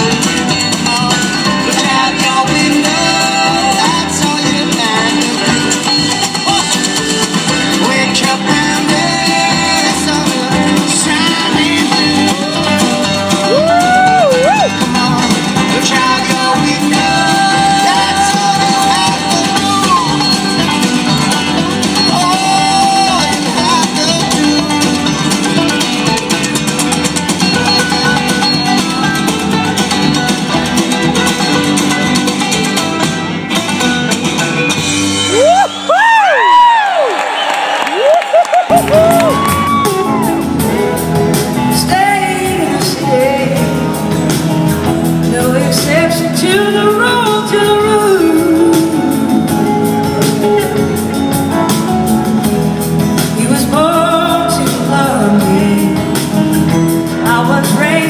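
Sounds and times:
person singing: 0.0s - 26.2s, 38.0s - 52.0s, 53.2s - 58.0s
strummed acoustic guitar: 0.0s - 35.4s
upright bass: 0.0s - 36.2s, 38.7s - 58.0s.

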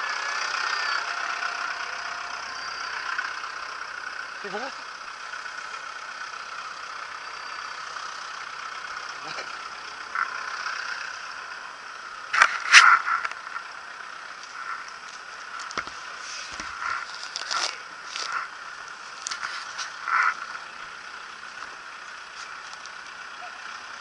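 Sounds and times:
engine and street noise: 0.0s - 24.0s
pitchfork scraping on pavement: 12.3s - 13.4s, 14.4s - 20.5s.

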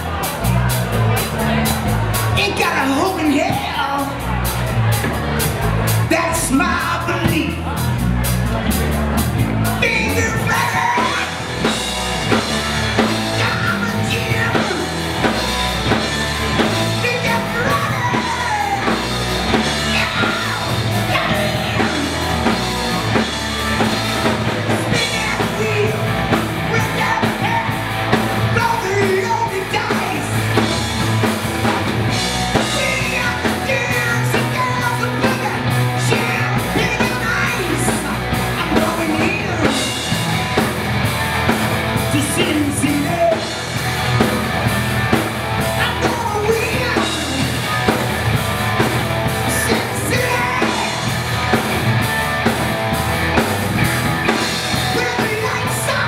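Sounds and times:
man singing: 0.0s - 4.6s, 6.0s - 8.0s, 9.6s - 31.0s, 32.1s - 40.6s, 42.0s - 43.8s, 45.6s - 48.1s, 49.2s - 51.6s, 54.4s - 56.0s
bass guitar: 0.0s - 56.0s
drum kit: 0.0s - 56.0s
electric guitars: 0.0s - 56.0s.

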